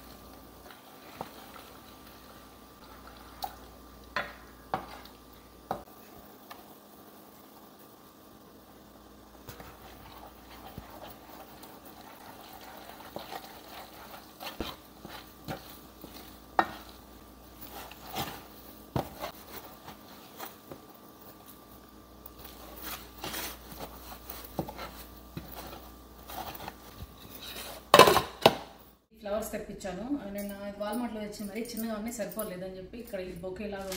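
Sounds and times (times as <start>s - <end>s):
spoon scraping saucepan: 9.5s - 17.0s.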